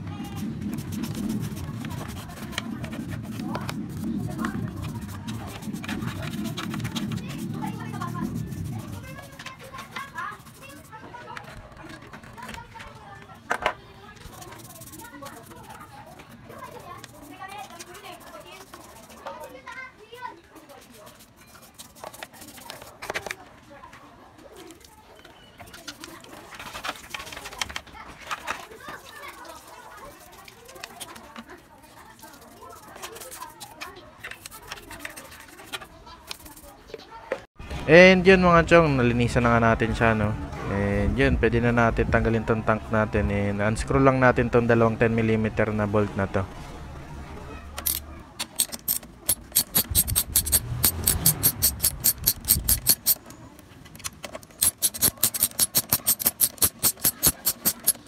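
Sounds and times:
socket ratchet wrench clicking: 0:47.8 - 0:53.2, 0:54.6 - 0:58.0.

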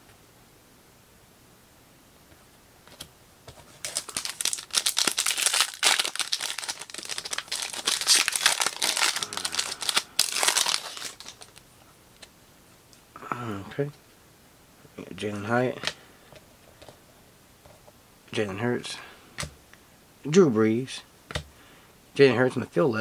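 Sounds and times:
foil wrapper crinkling: 0:03.7 - 0:11.6.

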